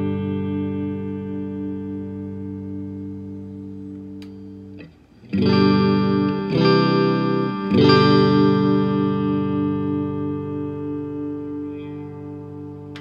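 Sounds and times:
electric guitar chords ringing: 0.0 - 13.0
guitar pick click: 3.4 - 10.3, 11.1 - 13.0.

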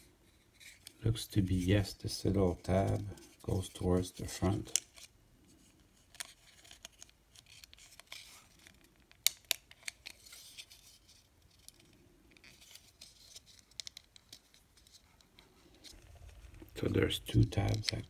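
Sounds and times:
plastic parts clicking and scraping: 6.0 - 18.0.

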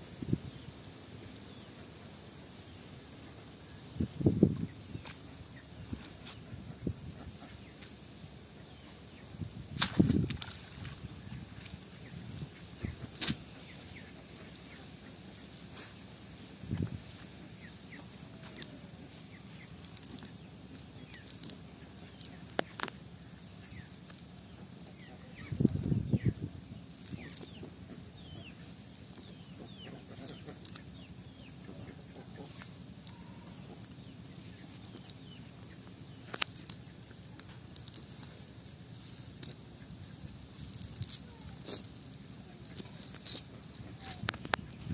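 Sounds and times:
birds chirping: 0.0 - 44.9
net being handled: 40.4 - 44.9.

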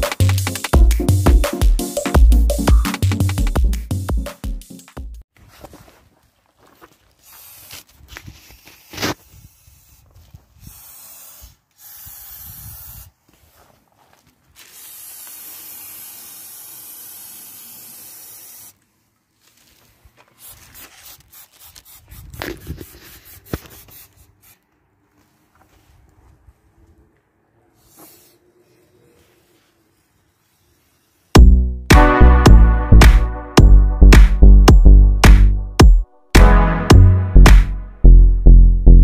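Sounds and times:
aerosol spray can hissing: 7.2 - 7.8, 10.6 - 13.1, 14.6 - 18.8, 20.4 - 24.6, 27.8 - 28.4, 29.4 - 31.4.

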